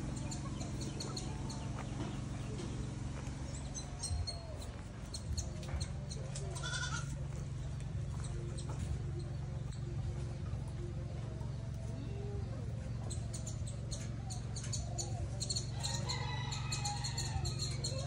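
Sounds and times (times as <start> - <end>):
steady low hum: 0.0 - 18.0
goat bleating: 6.5 - 7.2.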